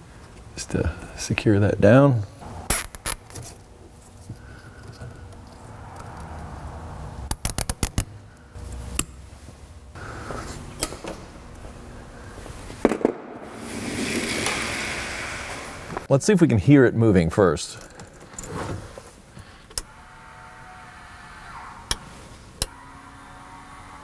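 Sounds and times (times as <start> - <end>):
even noise: 2.4 - 16.1.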